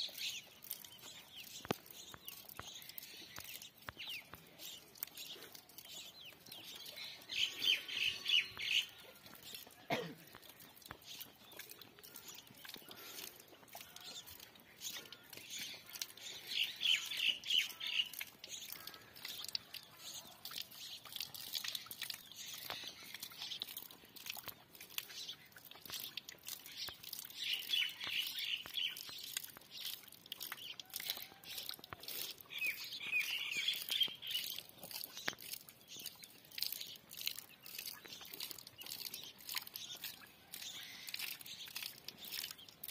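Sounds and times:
small birds chirping: 0.0s - 42.9s.

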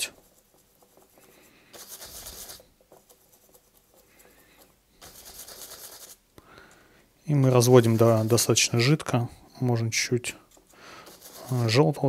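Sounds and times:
paintbrush scrubbing thick paint: 0.0s - 6.3s, 7.5s - 9.0s, 10.4s - 12.0s.

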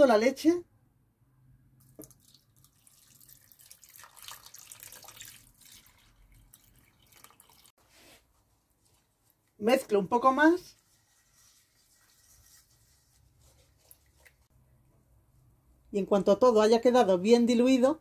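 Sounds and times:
milk pouring into a saucepan: 1.8s - 7.7s, 10.8s - 14.5s.

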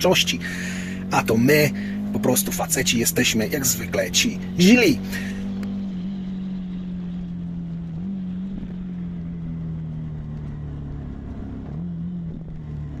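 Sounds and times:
vehicle motor droning: 0.0s - 13.0s
low rumble: 4.5s - 13.0s.

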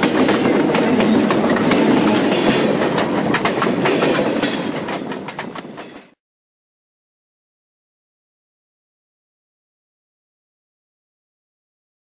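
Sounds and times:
steady train rumble: 0.0s - 6.2s
train wheels clattering on rails: 0.0s - 6.2s.

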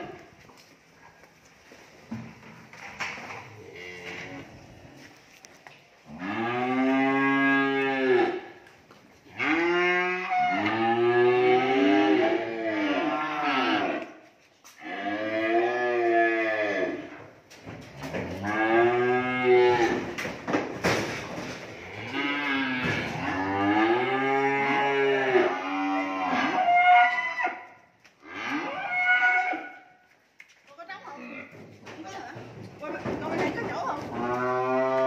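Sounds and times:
cattle mooing: 3.6s - 4.8s, 6.1s - 8.4s, 9.4s - 14.1s, 18.3s - 20.0s, 21.8s - 27.2s, 34.1s - 35.0s.

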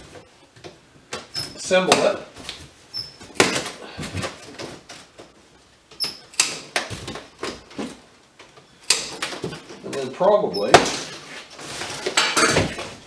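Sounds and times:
cardboard and strapping rustling: 10.9s - 13.0s.

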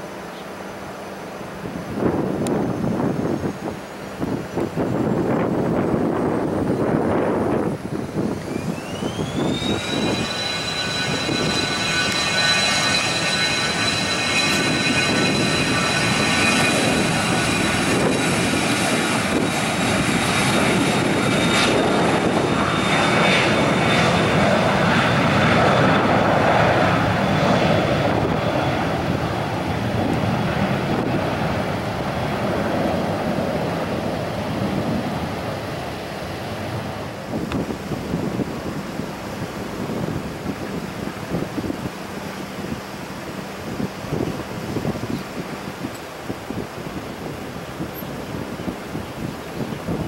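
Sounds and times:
jet engine whine: 0.0s - 50.0s
loud jet roar: 5.0s - 40.8s.

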